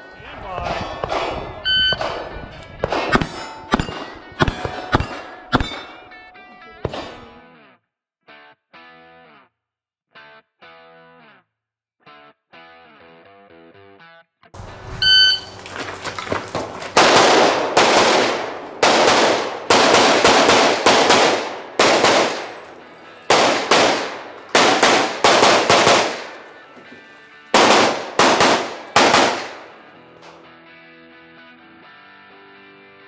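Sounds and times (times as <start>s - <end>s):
pistol shots: 0.6s - 7.4s, 15.3s - 26.6s, 27.5s - 29.9s
shot timer beep: 1.7s - 2.0s, 15.0s - 15.5s.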